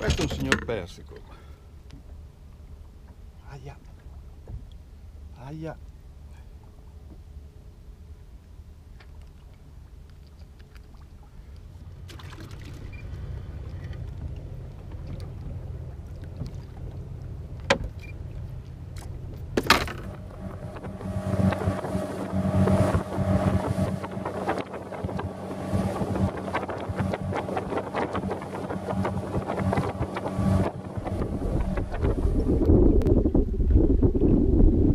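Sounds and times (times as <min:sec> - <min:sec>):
boat engine running: 0:00.0 - 0:34.9
low steady hum: 0:00.0 - 0:34.9
wind noise on microphone: 0:19.6 - 0:34.9.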